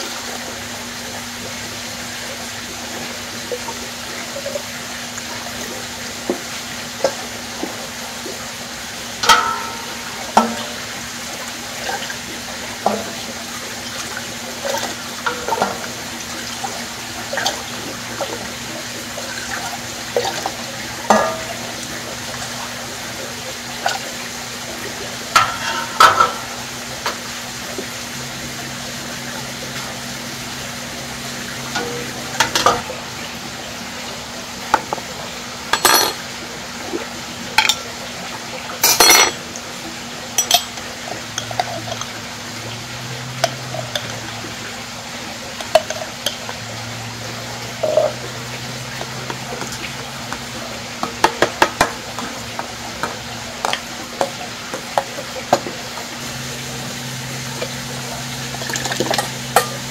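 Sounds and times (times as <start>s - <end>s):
metal utensils clinking on pots: 9.2s - 10.9s, 21.1s - 21.6s, 25.4s - 27.2s, 31.7s - 32.9s, 35.7s - 36.2s, 37.6s - 37.8s, 38.8s - 39.4s, 40.4s - 42.2s, 43.4s - 44.2s, 47.8s - 48.2s, 58.5s - 59.9s.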